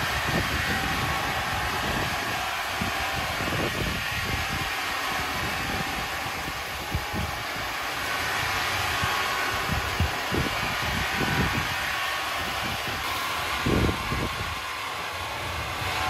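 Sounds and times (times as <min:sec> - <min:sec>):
woodworking machine whirring: 0:00.0 - 0:16.0.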